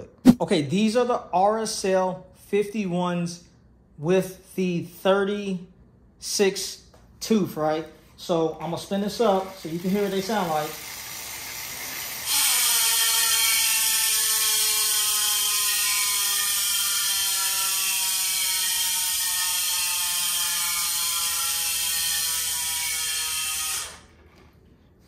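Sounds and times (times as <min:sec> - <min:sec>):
bicycle freehub clicking buzz: 0:09.3 - 0:24.1.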